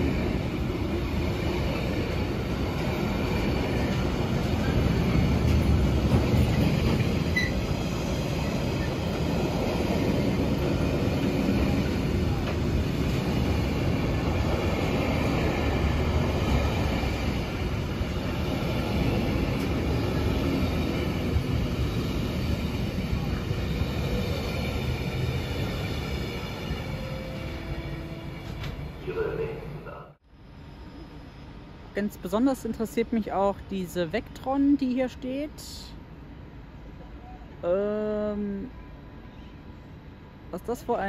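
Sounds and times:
freight train wagons rumbling: 0.0s - 30.2s.

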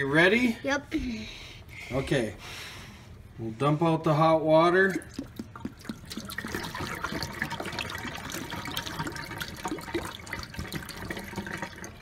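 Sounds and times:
water splashing into steel sink: 4.8s - 12.0s.

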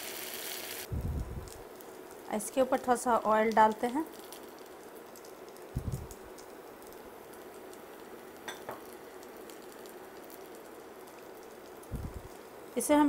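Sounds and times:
batter sizzling in pan: 0.0s - 13.0s.

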